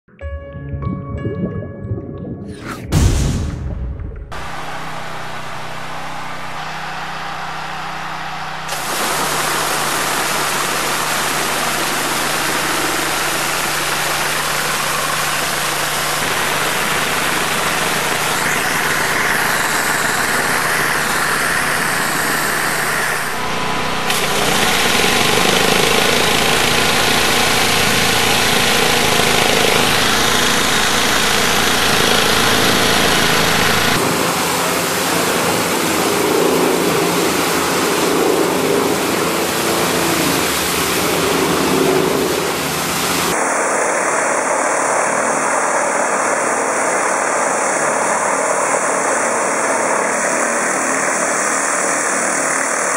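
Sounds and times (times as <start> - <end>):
low hum: 0.2 - 13.1.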